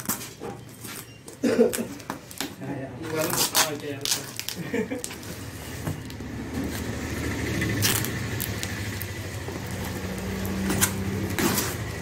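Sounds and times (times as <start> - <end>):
tape ripping: 1.7 - 6.8, 7.7 - 11.9
packing tape slit and peeled: 3.1 - 5.4, 7.7 - 11.8
low engine hum: 5.4 - 12.0.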